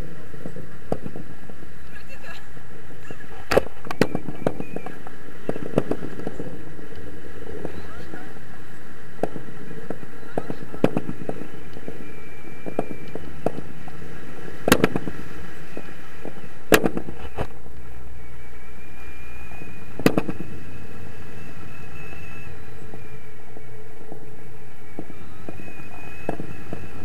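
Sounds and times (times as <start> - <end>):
wind rushing over microphone: 0.0 - 27.0
sharp pops and knocks: 0.9 - 1.2, 3.5 - 6.4, 9.2 - 11.9, 12.6 - 13.7, 14.6 - 15.2, 15.8 - 17.6, 20.0 - 20.4.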